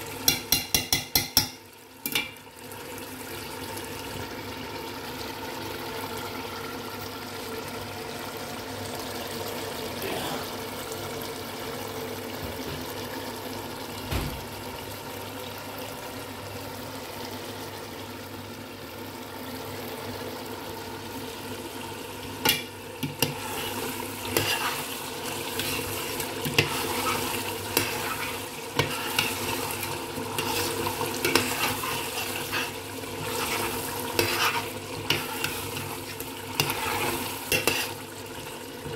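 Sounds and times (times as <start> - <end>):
curry simmering and sizzling in pot: 0.0 - 38.9
metal spoon scraping and clinking pot: 24.2 - 24.9, 30.3 - 38.0.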